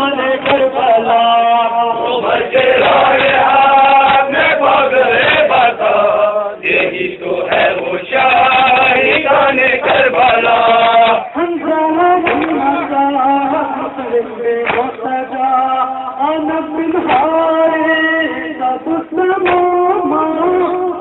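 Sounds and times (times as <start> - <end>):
men chanting in unison: 0.0 - 20.8
chest-beating slaps: 12.2 - 13.0, 14.6 - 15.1, 19.4 - 19.7.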